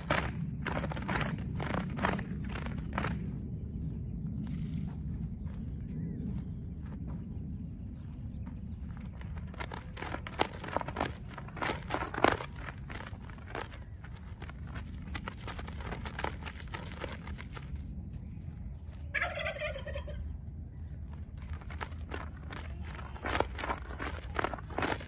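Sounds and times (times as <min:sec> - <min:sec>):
flag flapping and snapping: 0:00.0 - 0:03.2, 0:09.1 - 0:17.8.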